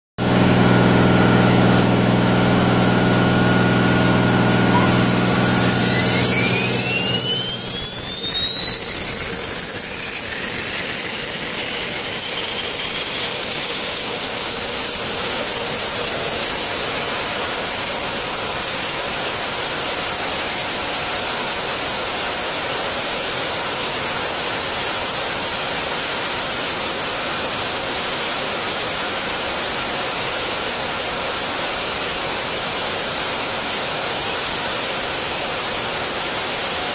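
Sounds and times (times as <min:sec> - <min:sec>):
low hum: 0:00.2 - 0:17.6
gas turbine whine spooling up: 0:00.2 - 0:36.9.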